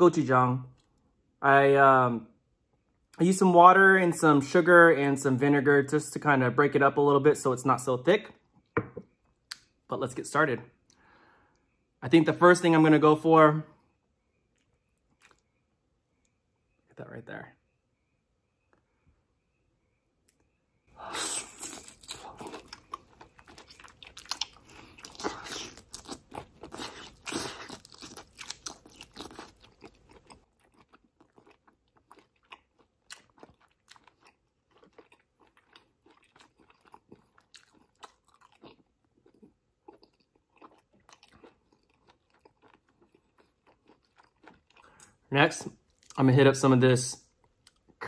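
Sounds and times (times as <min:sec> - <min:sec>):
wet chewing and crunching: 0:14.3 - 0:16.3, 0:21.1 - 0:46.2.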